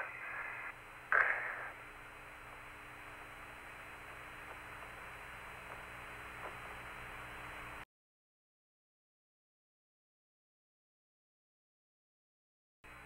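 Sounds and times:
loud burst of noise: 0.0s - 7.8s
radio hiss: 0.0s - 7.8s.

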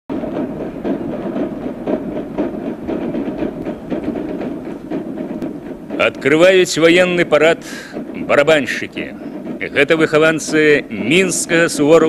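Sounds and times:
snare drums beating march: 0.1s - 12.0s.

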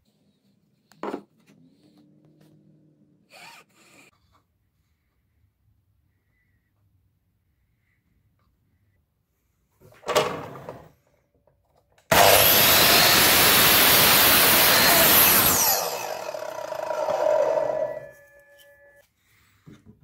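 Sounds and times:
mitre saw cutting wood: 12.1s - 18.2s.

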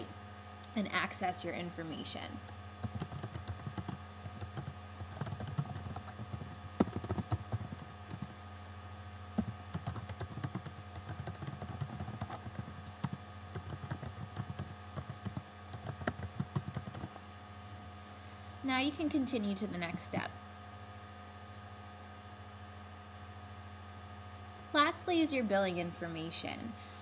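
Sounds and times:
steady low hum: 0.0s - 27.0s
computer keyboard typing: 2.8s - 8.4s, 9.4s - 17.1s.

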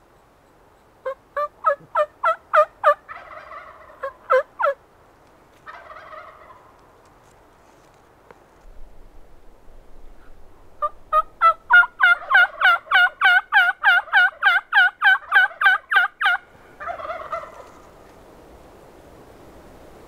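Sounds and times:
rough turkey call: 1.0s - 4.8s, 5.6s - 6.7s, 10.2s - 17.9s
turkey yelps: 1.0s - 4.8s, 5.7s - 6.6s, 10.8s - 17.8s.

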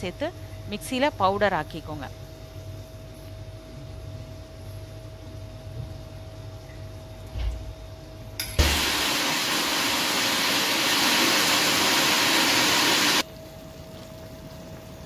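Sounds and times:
mixer grinder whirring: 8.6s - 13.2s.

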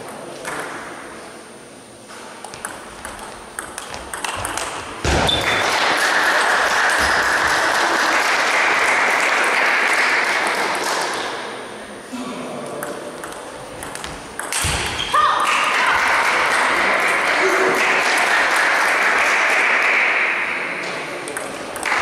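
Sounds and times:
table tennis ball clicking: 2.4s - 4.8s, 12.8s - 14.7s
sudden thud: 5.0s - 5.4s.

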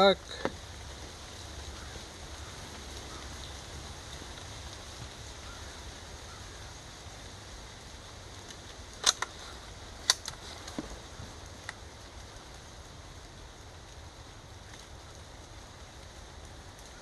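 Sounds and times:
low outdoor rumble: 0.0s - 17.0s
rifle action metallic clicks: 9.0s - 9.3s.

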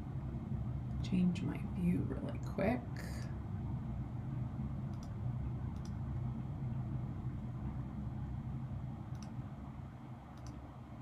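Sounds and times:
low background hum: 0.0s - 11.0s
faint mouse clicks: 4.9s - 6.0s, 9.1s - 9.4s, 10.3s - 10.6s.

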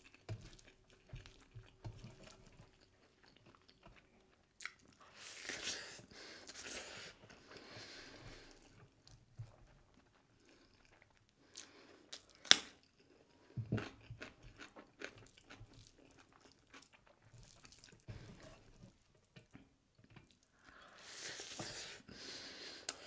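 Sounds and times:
person chewing food: 0.0s - 22.1s.

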